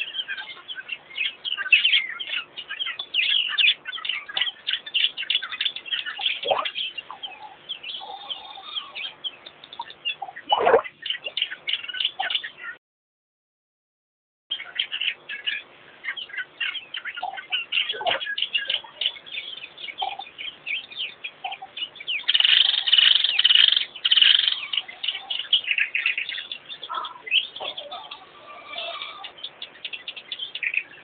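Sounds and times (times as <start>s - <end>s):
small birds chirping: 0.0s - 12.8s, 14.5s - 31.0s.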